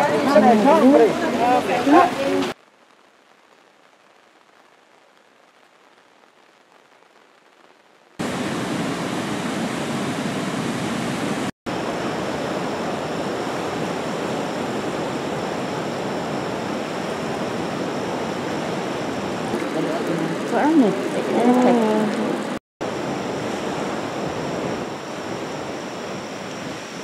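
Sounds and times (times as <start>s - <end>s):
faint hiss: 0.8s - 10.2s
river rushing over weir: 8.2s - 26.8s.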